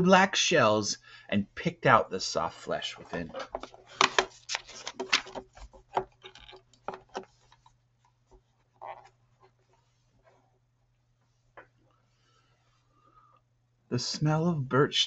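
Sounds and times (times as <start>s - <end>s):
book pages turning: 3.0s - 7.7s
paper rustles and clicks: 3.2s - 7.7s.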